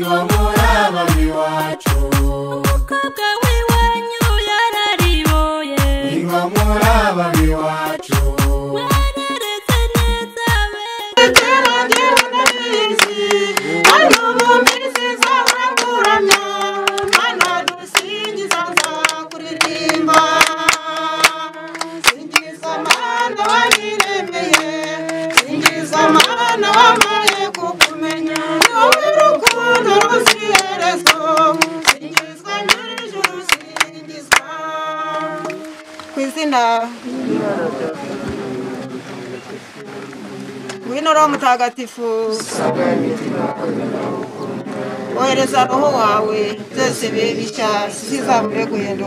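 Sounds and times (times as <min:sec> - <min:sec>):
hand clapping steady beat: 0:00.0 - 0:36.1
group of voices singing: 0:00.0 - 0:49.0.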